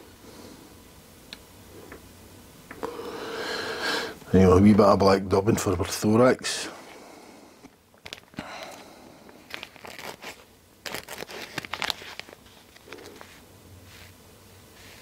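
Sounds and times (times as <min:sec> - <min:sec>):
plastic packet rustling: 0:07.9 - 0:14.1.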